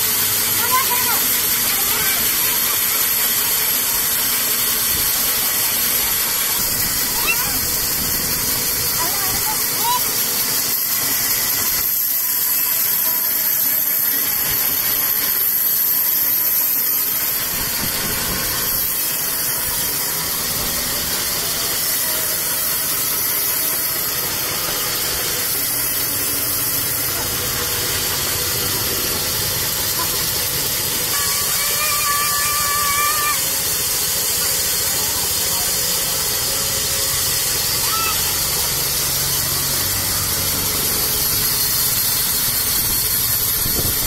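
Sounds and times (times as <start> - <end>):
band saw blade cutting wood: 33.4 - 44.0.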